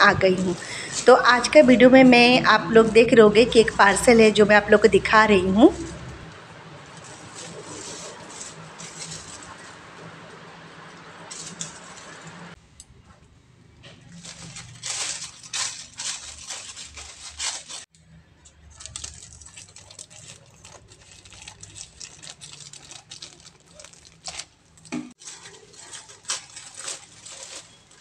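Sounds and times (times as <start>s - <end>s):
plastic mailer bag crinkling: 0.0s - 4.4s, 6.6s - 12.5s, 14.1s - 17.9s, 18.6s - 28.0s
scissors cutting plastic: 14.1s - 28.0s.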